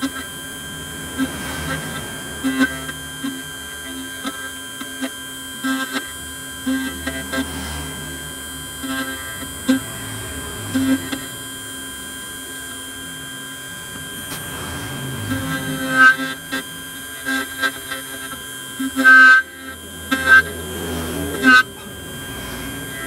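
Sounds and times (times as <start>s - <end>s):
key cutting machine whine: 0.0s - 23.0s
cutter clicking and scraping metal: 15.3s - 21.7s.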